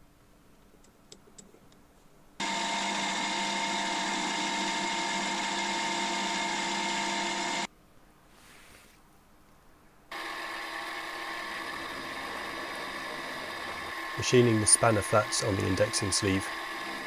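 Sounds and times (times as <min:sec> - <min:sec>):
milling machine motor whine: 0:02.4 - 0:07.7, 0:10.1 - 0:17.0.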